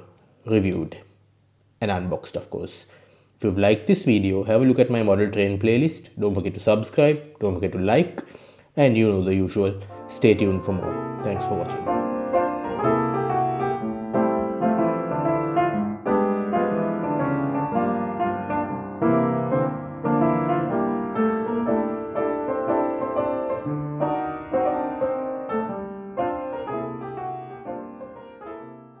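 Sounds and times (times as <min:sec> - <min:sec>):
piano music: 0:09.4 - 0:29.0.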